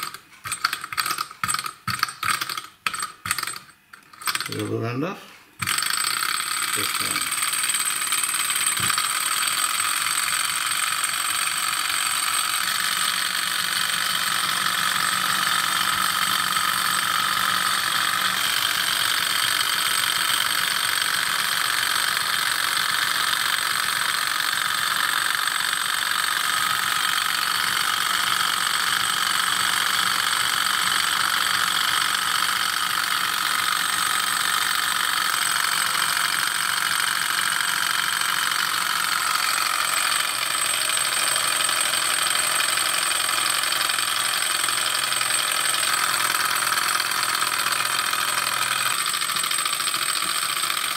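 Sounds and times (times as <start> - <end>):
small engine whirring and rattling: 0.0 - 4.8, 5.6 - 50.9.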